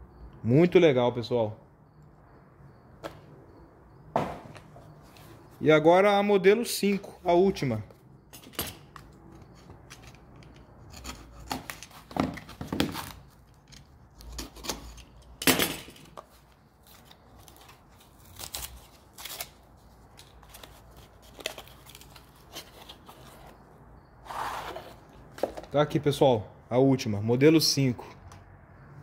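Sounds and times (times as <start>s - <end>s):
packaging rustling and tearing: 16.8s - 23.6s.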